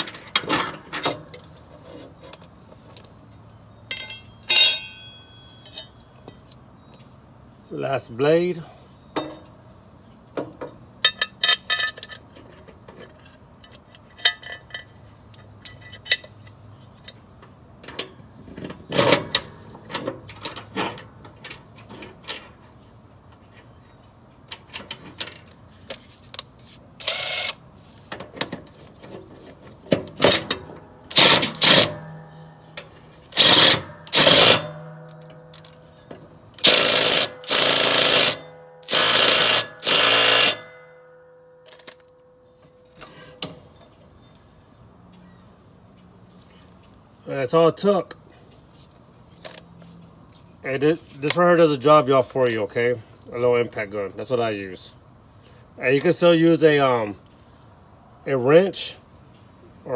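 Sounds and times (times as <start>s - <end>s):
light metal clinks and taps: 2.3s - 3.3s, 3.9s - 7.0s
impact gun hammering bursts: 31.1s - 32.1s, 33.4s - 34.9s.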